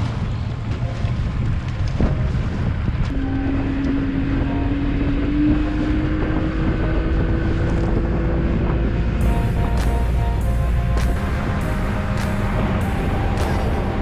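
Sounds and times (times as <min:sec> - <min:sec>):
wind buffeting microphone: 0:00.0 - 0:14.0
outboard motor running: 0:02.0 - 0:14.0
steady rising whine: 0:03.1 - 0:14.0.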